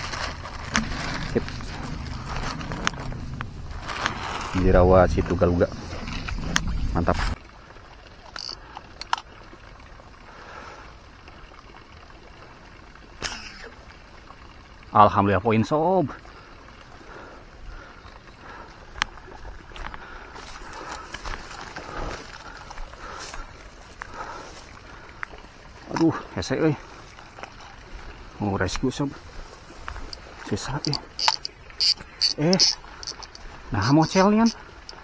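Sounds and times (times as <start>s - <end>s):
footsteps through tall grass: 0.0s - 2.8s, 19.8s - 24.8s, 29.2s - 30.4s
leaves rustling against walker: 0.0s - 7.4s, 19.6s - 35.0s
faint ticks: 25.1s - 26.1s, 29.8s - 35.0s.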